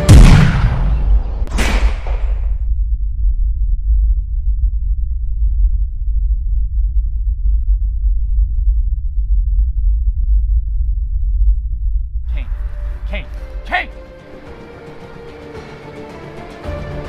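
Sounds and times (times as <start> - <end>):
deep low rumble drone: 0.1 - 13.6.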